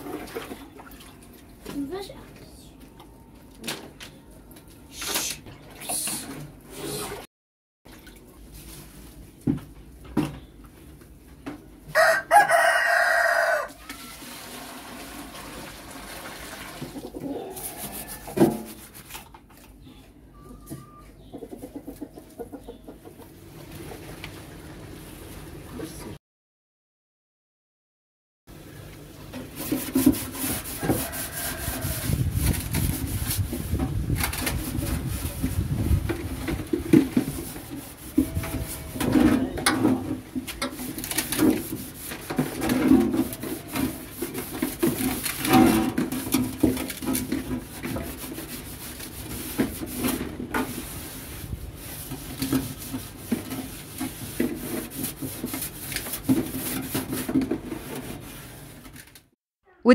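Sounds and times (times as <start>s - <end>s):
scrubbing plastic tub: 0.0s - 2.1s, 29.4s - 58.8s.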